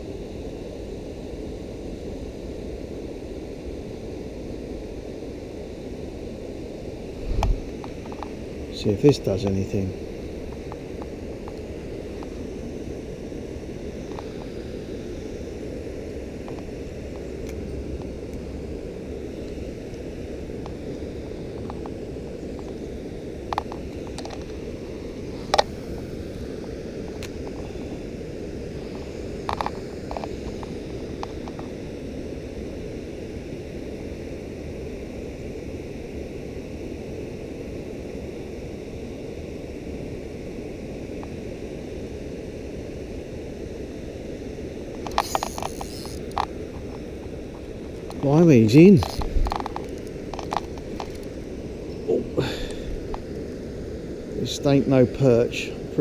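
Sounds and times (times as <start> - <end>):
low rushing noise: 7.0 - 10.7.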